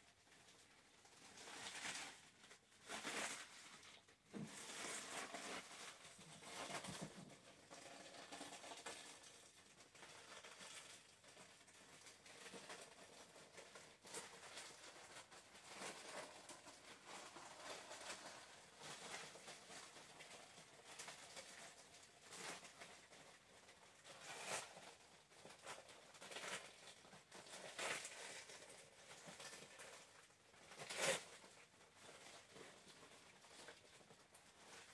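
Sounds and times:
plastic rustling and crinkling: 0.0 - 34.9.

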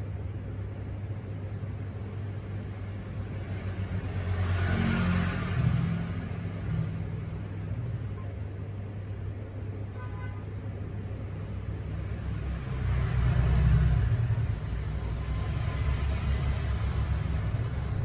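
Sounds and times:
road traffic rumble: 0.0 - 18.0
vehicle passing: 2.7 - 7.8, 11.8 - 18.0.

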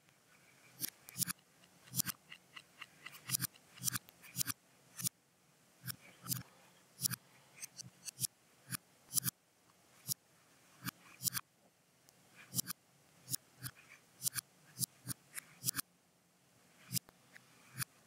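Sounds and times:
computer mouse clicking: 0.8 - 5.1, 5.8 - 6.4, 7.0 - 9.3, 10.8 - 11.4, 12.5 - 15.8.

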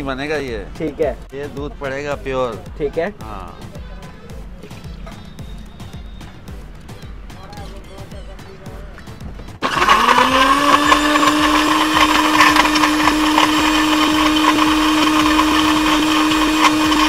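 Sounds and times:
electric blender running: 9.6 - 17.0.

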